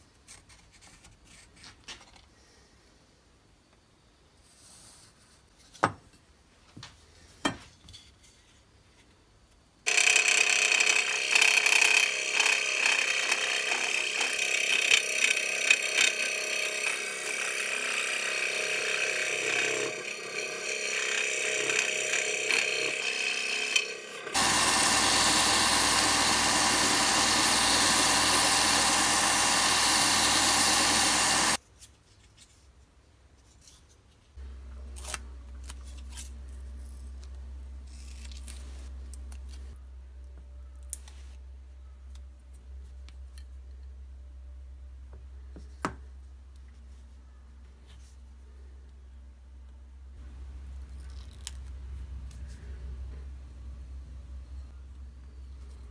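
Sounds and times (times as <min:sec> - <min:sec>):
belt sander running: 0:09.9 - 0:31.6.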